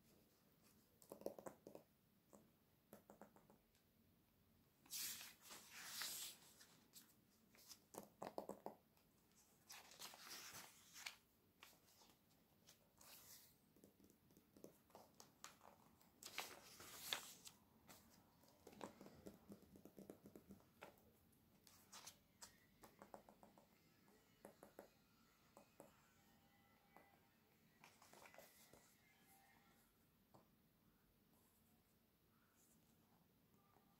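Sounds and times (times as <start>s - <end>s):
page turns swishing: 4.9s - 6.7s, 16.2s - 18.0s
fingernails tapping on paper: 18.7s - 20.9s.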